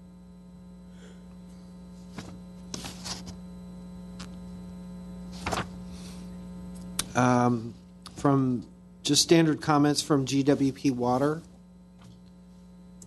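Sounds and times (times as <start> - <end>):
electrical mains hum: 0.0 - 13.0
paper pages turning: 5.4 - 5.8.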